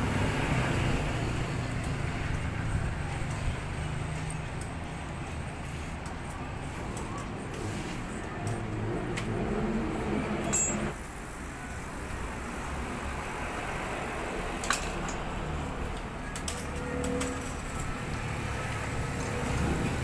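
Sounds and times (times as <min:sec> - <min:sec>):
background traffic rumble: 0:00.0 - 0:20.0
metallic clinks of small parts: 0:10.4 - 0:11.0.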